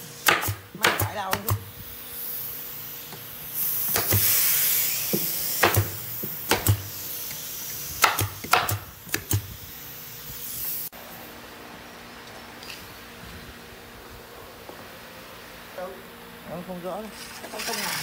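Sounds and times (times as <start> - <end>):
pneumatic staple gun firing: 0.2 - 1.6, 3.1 - 9.5
air hissing from tool: 1.5 - 11.2.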